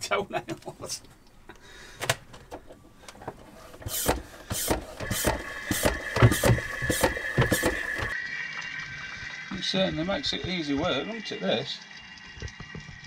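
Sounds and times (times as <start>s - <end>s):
hand oil pump strokes: 3.4s - 8.2s.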